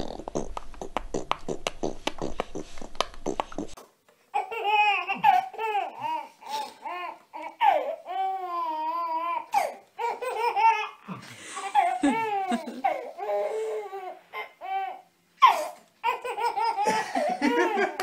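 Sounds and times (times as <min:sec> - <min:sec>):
baby laughing: 0:04.4 - 0:18.0.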